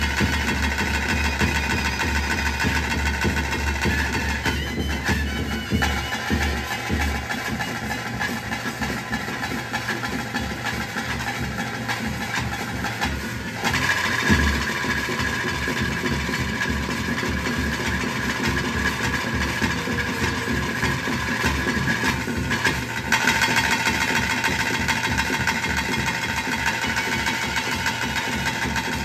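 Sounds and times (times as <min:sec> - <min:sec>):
drums beating fast rhythm: 0:00.0 - 0:29.0
held high tone: 0:01.0 - 0:08.0, 0:18.7 - 0:22.5.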